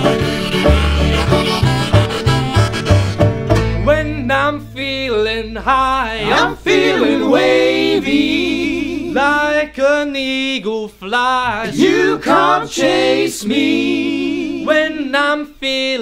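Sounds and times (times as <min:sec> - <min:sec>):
band playing banjo and guitar: 0:00.0 - 0:09.4, 0:11.6 - 0:13.6
band singing in harmony: 0:04.2 - 0:10.0, 0:11.4 - 0:15.4.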